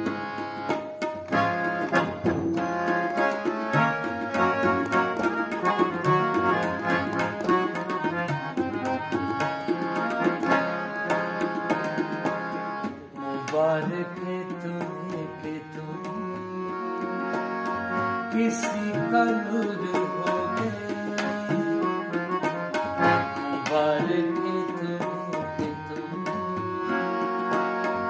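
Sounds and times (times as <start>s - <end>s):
tabla strokes: 0.0s - 13.6s
harmonium melody: 0.0s - 28.0s.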